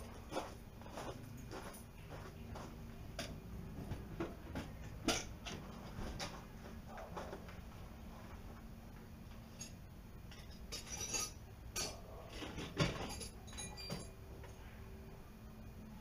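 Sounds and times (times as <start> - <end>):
faint steady hum: 0.0 - 16.0
light clinks and knocks: 9.5 - 14.5.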